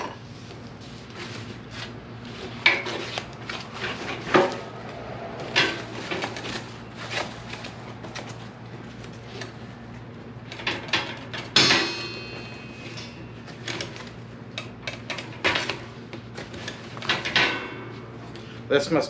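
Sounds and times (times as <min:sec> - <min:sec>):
metal grate clinking: 0:10.7 - 0:13.2.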